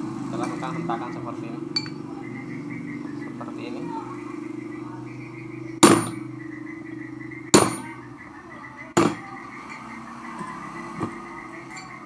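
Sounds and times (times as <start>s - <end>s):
hammer striking steel bar: 5.8s - 6.3s, 7.5s - 7.9s, 9.0s - 9.3s.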